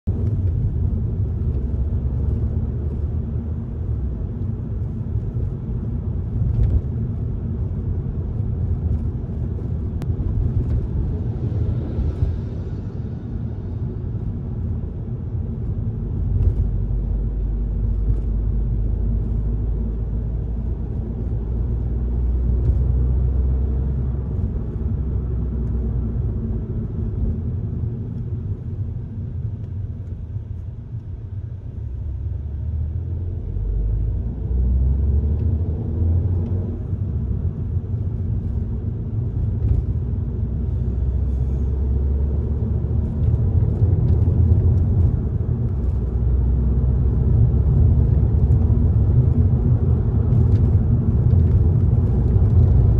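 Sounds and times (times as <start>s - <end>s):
car engine and road noise: 0.0s - 52.9s.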